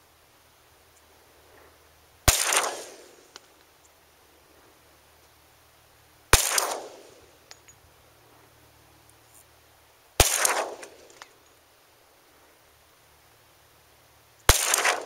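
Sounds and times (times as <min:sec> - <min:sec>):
pistol shots with echo: 0:02.3 - 0:03.2, 0:06.4 - 0:07.2, 0:10.2 - 0:11.0, 0:14.5 - 0:15.0.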